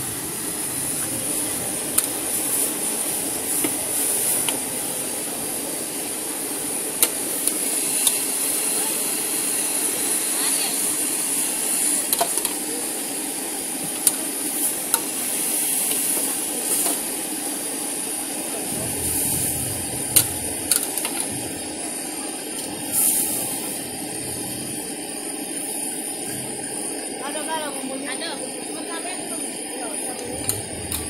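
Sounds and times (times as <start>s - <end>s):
noodles sizzling in wok: 0.0s - 31.0s.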